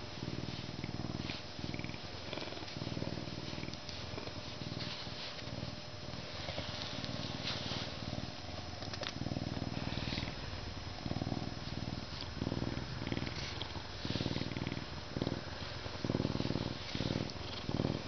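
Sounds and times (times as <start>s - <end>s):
hand rustling fur: 0.3s - 8.3s, 11.1s - 18.0s
lynx purring deeply: 9.0s - 18.0s.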